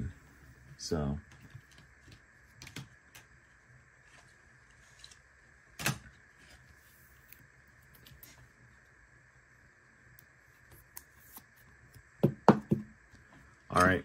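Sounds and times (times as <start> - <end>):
cards sliding and clicking: 10.6 - 11.7.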